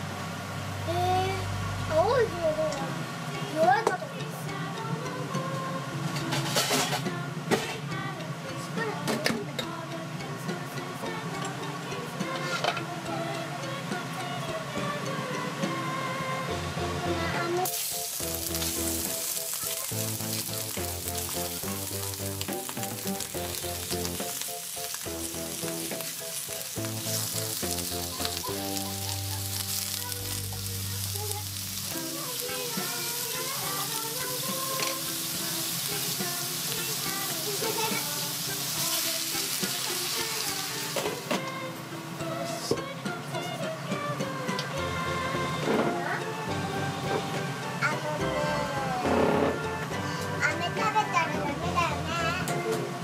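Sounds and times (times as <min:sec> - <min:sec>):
background music: 0:00.0 - 0:53.0
shrimp sizzling in hot oil: 0:17.6 - 0:41.3.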